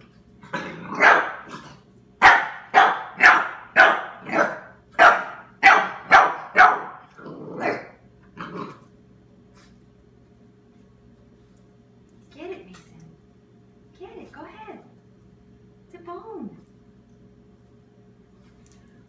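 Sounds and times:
puppy barking: 0.9s - 1.5s, 2.2s - 8.0s.

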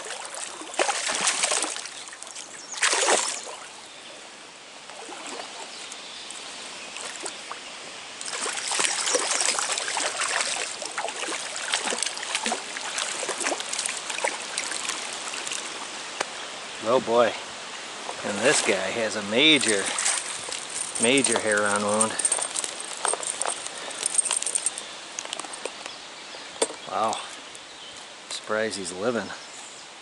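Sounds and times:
fish splashing at surface: 0.0s - 3.7s, 8.2s - 15.9s, 19.5s - 24.6s
stream water running: 0.0s - 30.0s.

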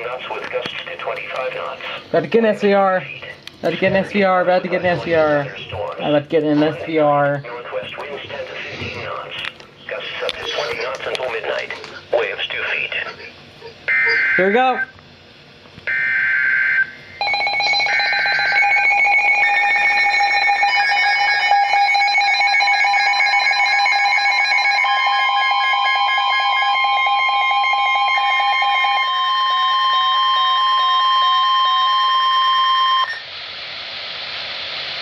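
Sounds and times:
steady warning alert tone: 13.9s - 14.9s, 15.9s - 33.2s
beeping alarms: 13.9s - 15.0s, 15.9s - 33.3s.

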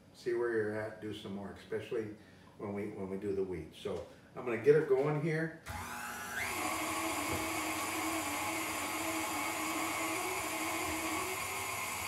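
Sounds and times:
stand mixer meat grinder running: 5.7s - 12.0s.

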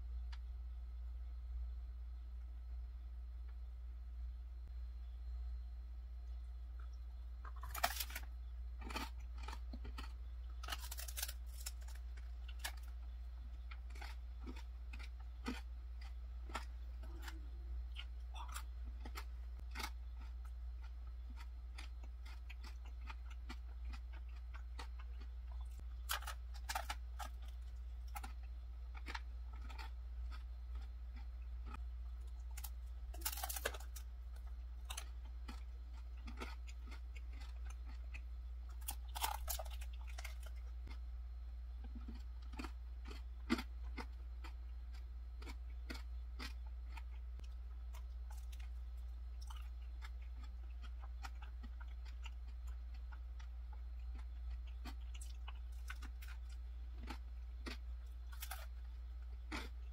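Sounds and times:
steady low hum: 0.0s - 59.9s
chewing and crunching: 6.2s - 59.9s.

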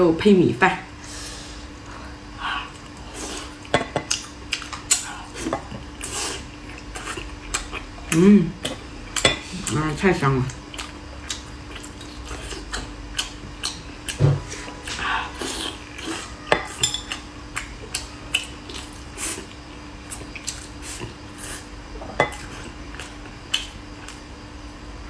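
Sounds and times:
faint steady hum: 0.0s - 25.0s
wet chewing: 2.7s - 9.8s, 10.5s - 16.3s, 17.0s - 21.6s, 22.3s - 24.3s.

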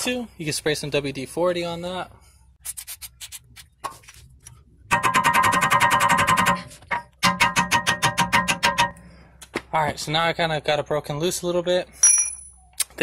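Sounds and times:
hammer striking metal pick: 4.9s - 9.1s.

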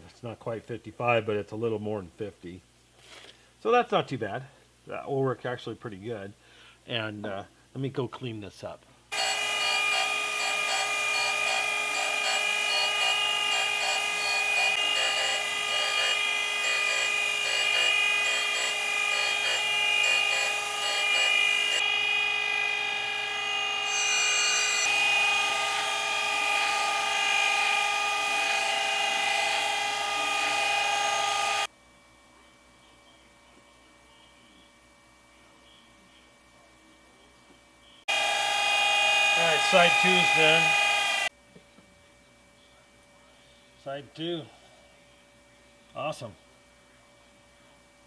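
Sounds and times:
grinder wheel whining on steel: 9.1s - 31.7s, 38.1s - 41.3s.

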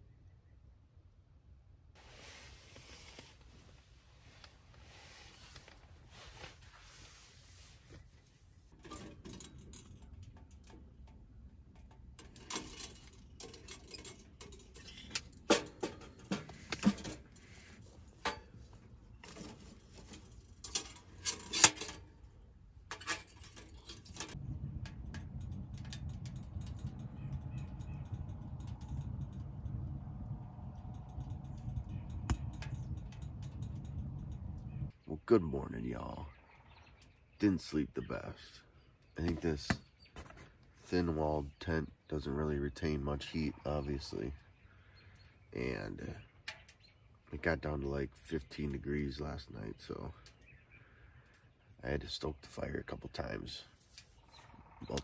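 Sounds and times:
low rumble: 24.4s - 34.9s.

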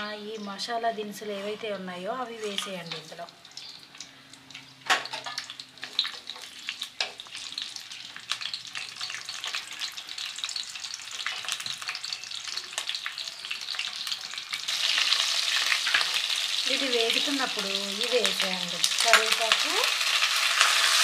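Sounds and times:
spices sizzling in hot oil: 0.2s - 21.0s
crackle of tiny pops: 2.6s - 9.8s.

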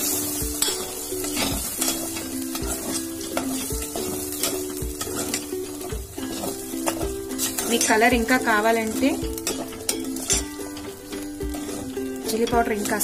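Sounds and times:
food sizzling in a pot: 0.0s - 13.0s
quiet background tune: 0.0s - 13.0s
metal spoon scraping a pot: 0.2s - 13.0s.

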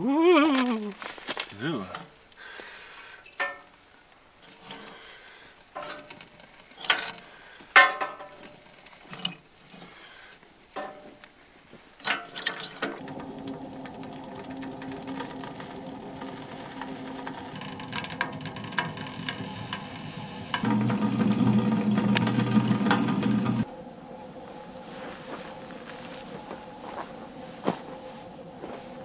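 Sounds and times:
firewood knocking metal stove: 12.1s - 23.7s
low hum: 13.0s - 29.0s.

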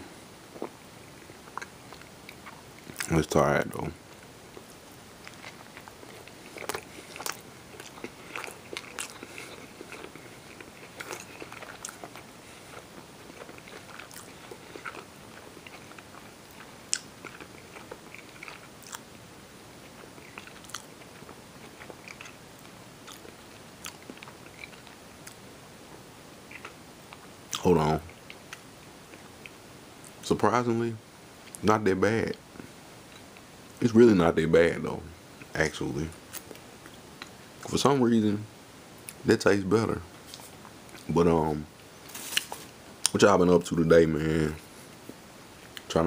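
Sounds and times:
person chewing: 0.5s - 3.1s, 4.1s - 19.2s, 19.8s - 25.4s, 26.4s - 30.2s.

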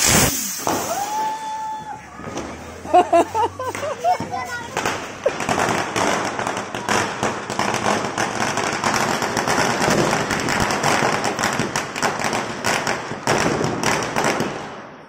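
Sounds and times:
firecrackers crackling and popping: 0.0s - 15.0s.

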